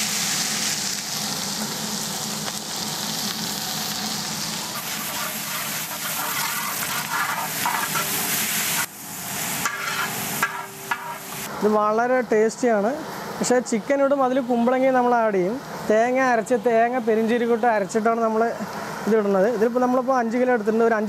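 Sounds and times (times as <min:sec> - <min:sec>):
shallots sizzling in hot oil: 0:00.0 - 0:11.5
ladle turning food: 0:04.6 - 0:08.9, 0:09.5 - 0:11.5.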